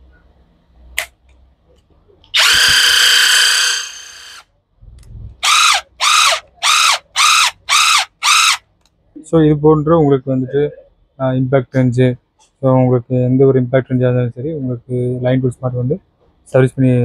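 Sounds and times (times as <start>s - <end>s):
impact wrench whirring: 2.4s - 4.4s, 5.4s - 8.6s.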